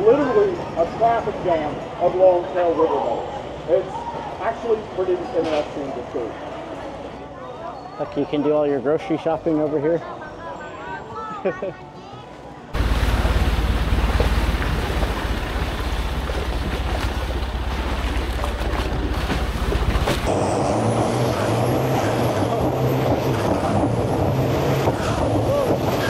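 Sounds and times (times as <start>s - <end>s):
boat engine running: 12.8s - 26.0s
high engine whine: 12.8s - 26.0s.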